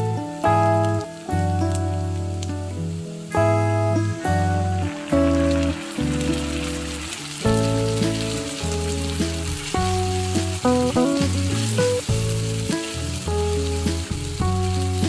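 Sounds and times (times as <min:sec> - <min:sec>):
background music with bass line: 0:00.0 - 0:15.0
frying pan sizzling: 0:00.0 - 0:15.0.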